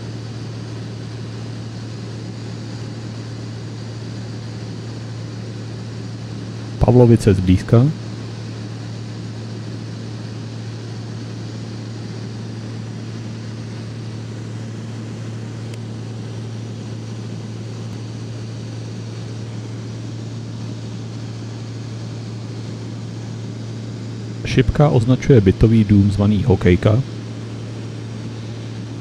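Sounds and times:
plane engine droning in cabin: 0.0s - 29.0s.

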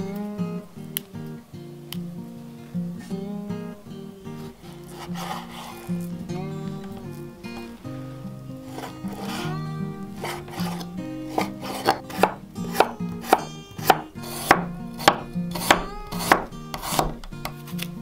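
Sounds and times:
soft background music: 0.0s - 18.0s
knife chopping on wooden board: 10.2s - 17.6s.

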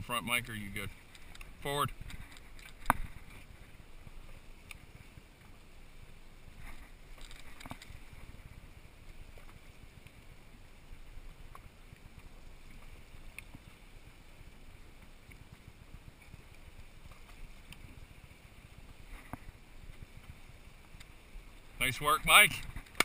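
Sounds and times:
boat engines rumbling: 0.0s - 23.0s
water along hull: 0.0s - 23.0s
faint clicks: 0.9s - 3.6s, 4.6s - 5.6s, 11.5s - 13.8s, 15.0s - 18.1s, 18.9s - 21.2s.

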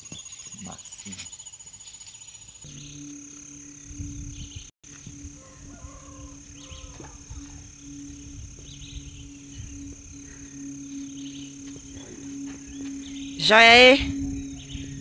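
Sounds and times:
distant birds chirping: 0.0s - 15.0s
steady low hum: 2.7s - 15.0s
wind rumbling on microphone: 3.8s - 13.4s, 14.0s - 15.0s.

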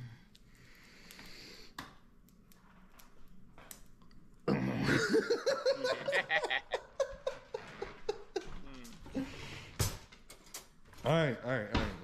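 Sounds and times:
man laughing: 4.8s - 8.9s.

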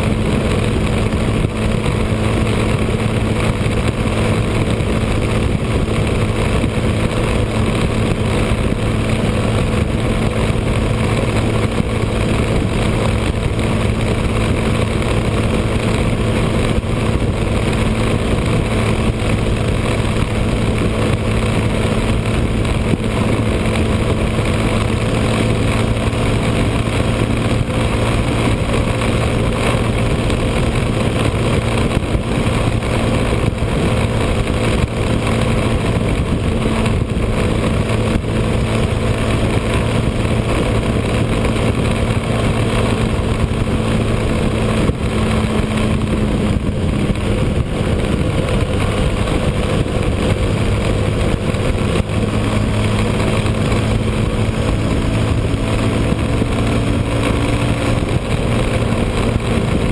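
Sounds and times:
motorcycle engine cruising: 0.0s - 59.9s
road noise: 0.0s - 59.9s
wind noise: 0.0s - 59.9s.

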